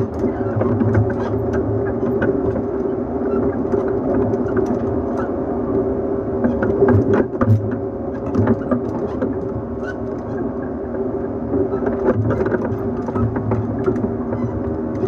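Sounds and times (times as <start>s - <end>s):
running gear clicks and knocks: 11.7s - 15.0s.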